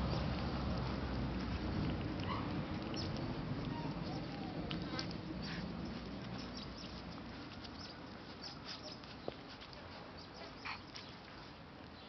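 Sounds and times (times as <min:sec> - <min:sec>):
scuffling patter of paws: 0:00.0 - 0:12.0
puppies squeaking: 0:02.3 - 0:09.3, 0:10.2 - 0:11.1.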